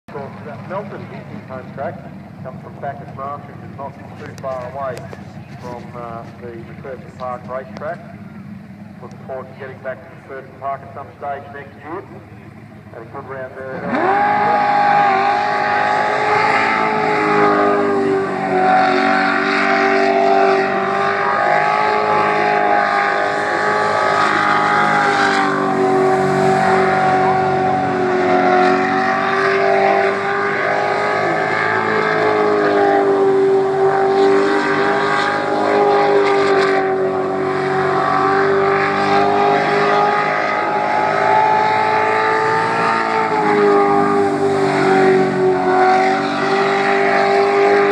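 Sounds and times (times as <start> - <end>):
boat engine running loud: 0.1 - 47.9.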